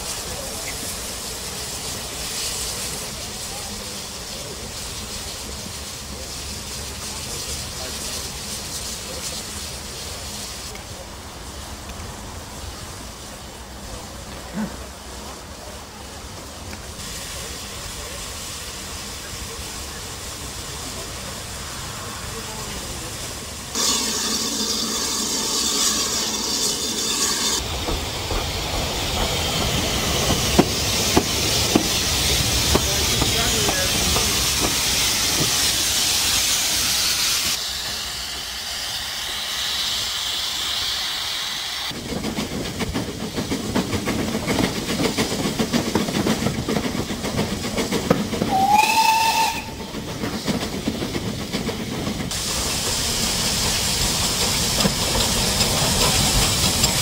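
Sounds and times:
loud hiss of steam: 0.0s - 57.0s
steam whistle blast: 48.5s - 49.9s.

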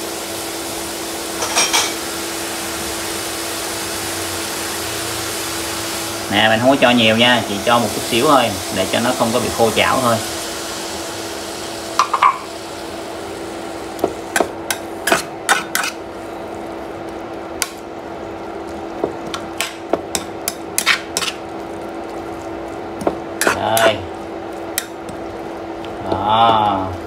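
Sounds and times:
steady hiss and low hum: 6.1s - 27.0s.

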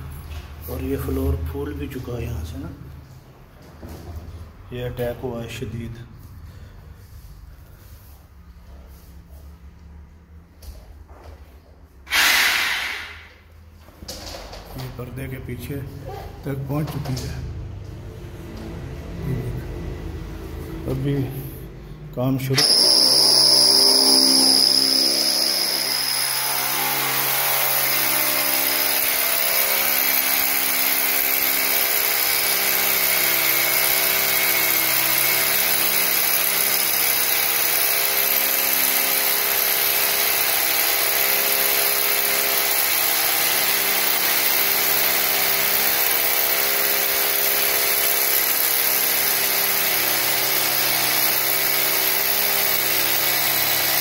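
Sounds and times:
hammer drill boring through wood: 12.1s - 13.4s, 22.6s - 54.0s.

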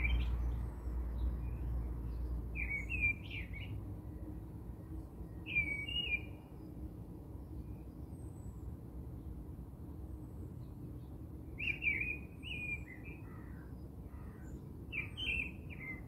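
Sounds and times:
small bird chirping: 0.0s - 3.8s.

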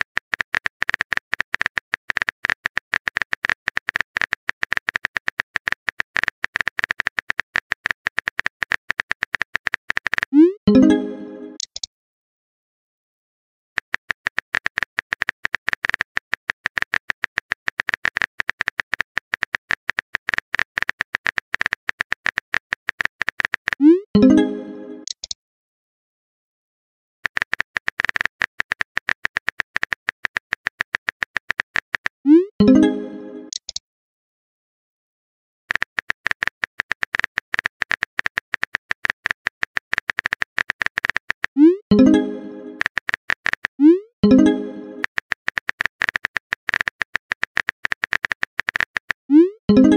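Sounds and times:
phone keyboard typing clicks: 0.0s - 10.9s, 11.5s - 11.9s, 13.8s - 25.4s, 27.2s - 33.8s, 35.7s - 49.9s.

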